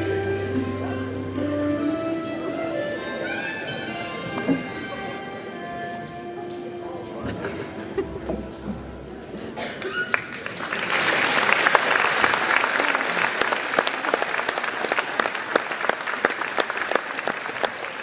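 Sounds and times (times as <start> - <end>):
audience applauding: 9.8 - 18.0.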